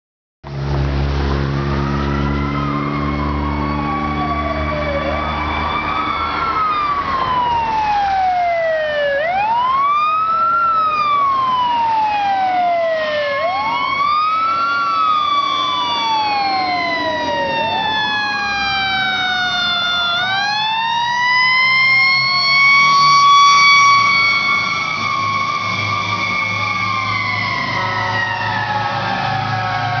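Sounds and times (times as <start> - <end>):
fast fire truck siren: 0.5 - 30.0
slow sweeping fire truck siren: 0.5 - 30.0.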